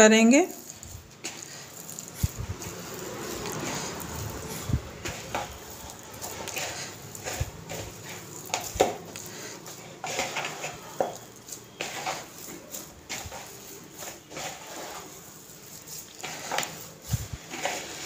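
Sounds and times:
hands squishing mashed potato: 0.5s - 18.0s.

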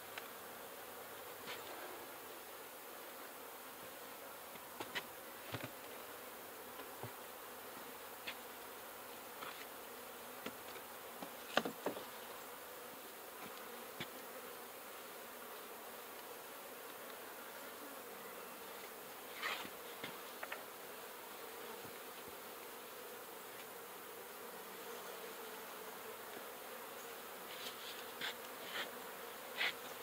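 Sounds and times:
bees buzzing: 0.0s - 30.0s
wooden knocks of hive boards: 11.2s - 12.0s.

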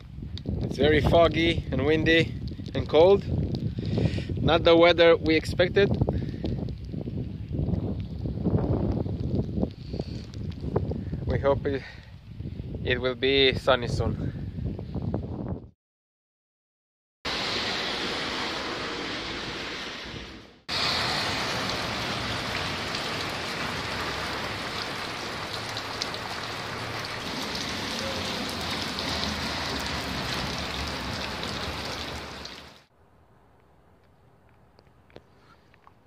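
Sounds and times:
rain on wet asphalt: 0.1s - 12.1s, 17.3s - 32.9s.

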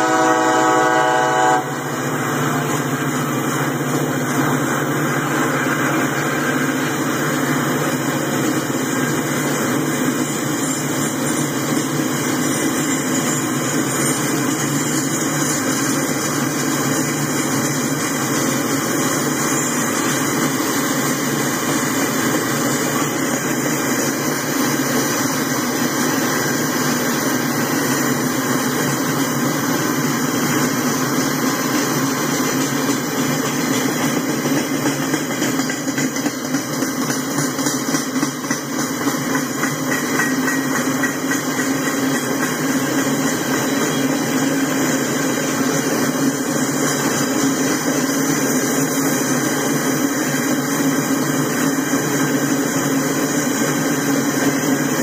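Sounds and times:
train wheels rolling on rails: 0.0s - 55.0s.

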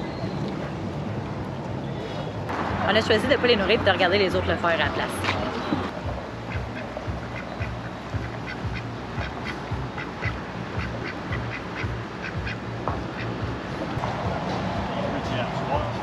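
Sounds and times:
ducks quacking: 6.1s - 13.4s.

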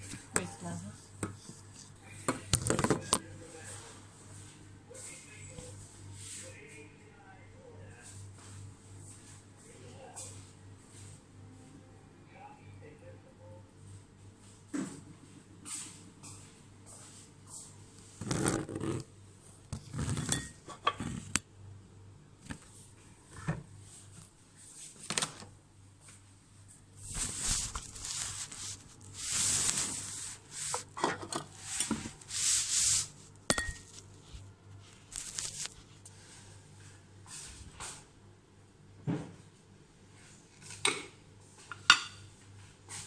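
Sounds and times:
pots and utensils scraping: 19.8s - 21.3s, 27.8s - 32.2s, 33.5s - 34.0s.

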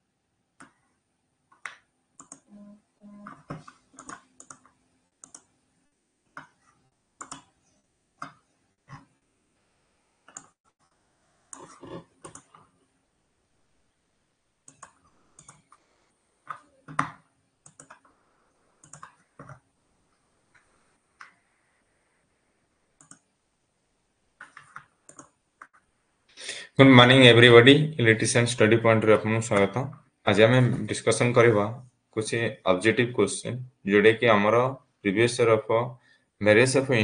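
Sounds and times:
computer mouse and keyboard clicks: 1.5s - 2.5s, 3.2s - 5.5s, 7.2s - 7.6s, 10.2s - 10.6s, 11.5s - 12.7s, 14.7s - 15.8s, 16.4s - 18.2s, 18.8s - 19.6s, 23.0s - 23.3s, 24.4s - 25.9s.

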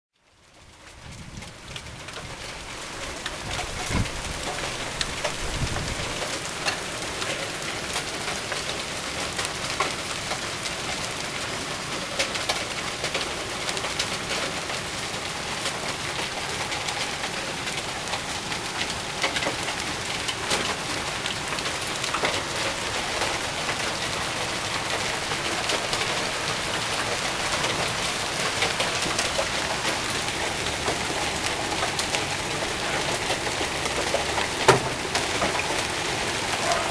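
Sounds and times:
hailstones clicking on concrete: 0.4s - 36.9s
heavy rain hissing: 14.2s - 36.9s.

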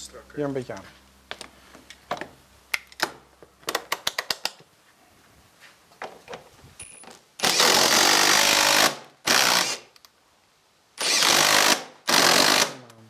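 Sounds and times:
cordless drill driving screws: 7.4s - 9.9s, 11.0s - 12.8s.

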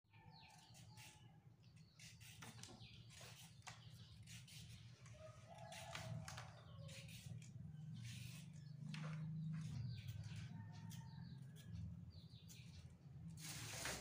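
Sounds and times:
peeler scraping a carrot: 0.5s - 5.0s, 5.6s - 8.7s.

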